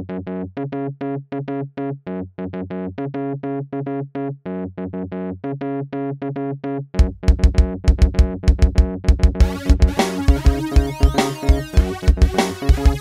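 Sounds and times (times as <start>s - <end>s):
low bass line: 7.0s - 13.0s
staccato keyboard notes: 9.4s - 13.0s.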